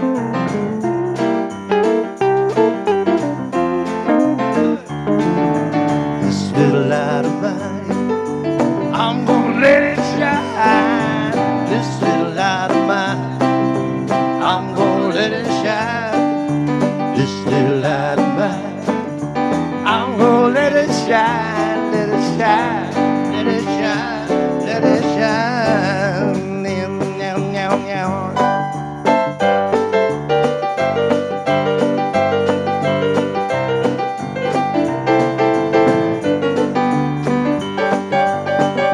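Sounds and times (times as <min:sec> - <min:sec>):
live country band playing: 0:00.0 - 0:38.9
vocalist singing: 0:06.2 - 0:08.1, 0:08.9 - 0:13.5, 0:14.4 - 0:16.4, 0:17.1 - 0:19.0, 0:19.8 - 0:28.4.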